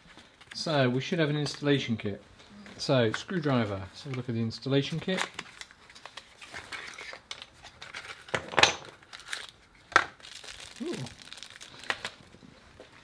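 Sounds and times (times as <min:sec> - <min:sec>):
plastic bag crinkling: 0:09.1 - 0:12.4.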